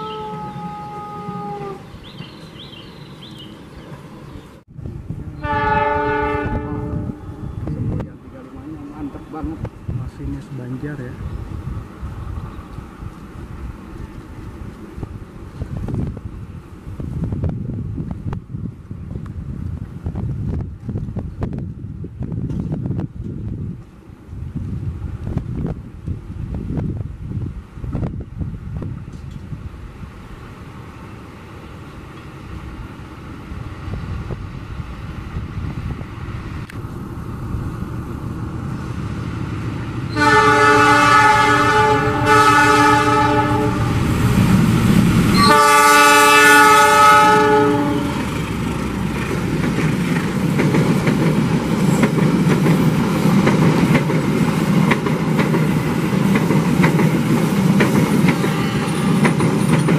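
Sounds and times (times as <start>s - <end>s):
train horn blasts: 0.0s - 1.9s, 5.4s - 7.6s, 40.1s - 44.0s, 45.3s - 48.2s, 58.4s - 59.2s
locomotive engine rumble: 0.0s - 59.9s
train wheels clattering: 48.2s - 59.9s.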